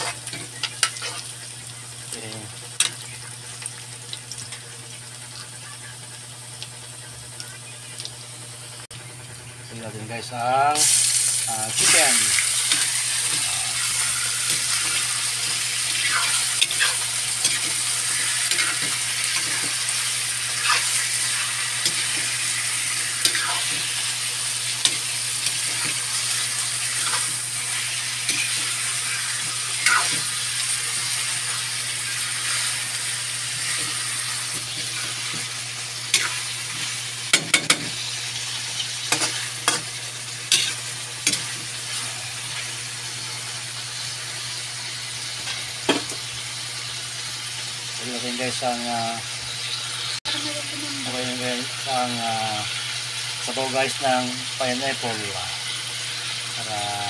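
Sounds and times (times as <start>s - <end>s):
spatula scraping a wok: 0.0s - 1.3s, 10.9s - 24.0s, 24.8s - 35.5s, 36.1s - 38.1s, 39.0s - 42.4s
chicken sizzling in hot oil: 0.0s - 57.0s.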